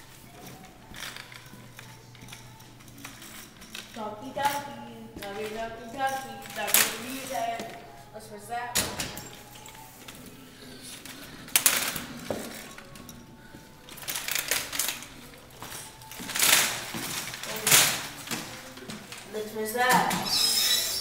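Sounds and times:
automatic door clunk: 0:08.6 - 0:09.8.

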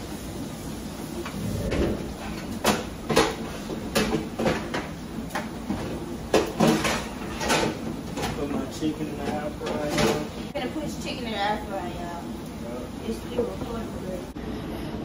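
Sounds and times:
cookware and dishes clattering: 0:05.7 - 0:10.4.

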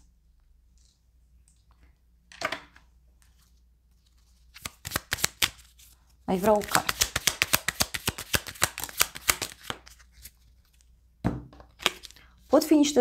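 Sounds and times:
soft card rustle: 0:03.1 - 0:11.0, 0:11.7 - 0:12.6
cards flicking while shuffled: 0:04.5 - 0:05.7, 0:06.3 - 0:10.3.

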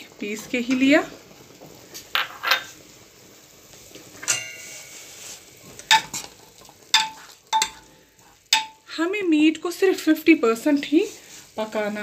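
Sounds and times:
ringing metal clink: 0:04.2 - 0:04.7
metal ladle stirring: 0:04.3 - 0:07.9.

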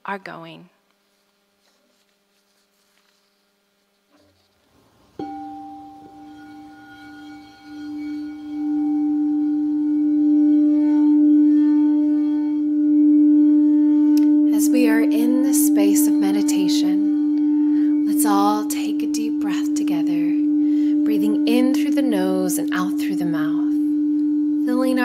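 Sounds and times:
crystal singing bowl ringing: 0:05.1 - 0:25.0.

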